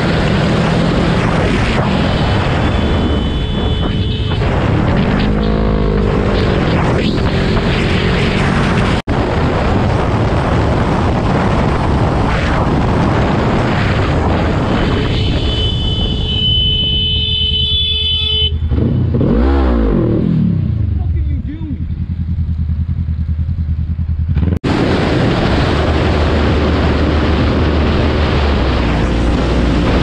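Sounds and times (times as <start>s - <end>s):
wind noise on microphone: 0.0s - 17.2s, 24.4s - 30.0s
car horn: 2.4s - 4.8s, 14.7s - 19.3s
motorcycle engine running: 20.7s - 24.8s.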